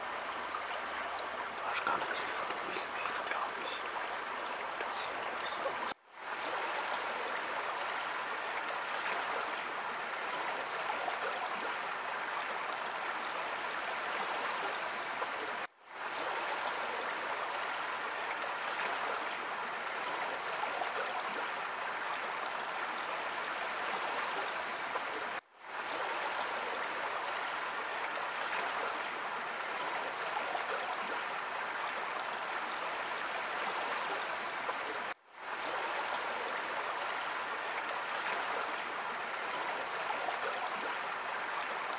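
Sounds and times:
stream rushing: 0.0 - 41.9.

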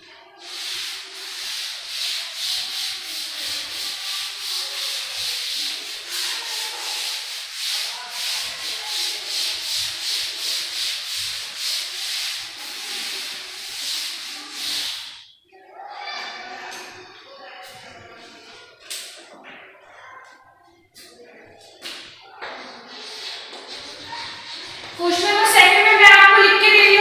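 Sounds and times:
duster rubbing chalkboard: 0.3 - 15.2, 21.9 - 27.0.

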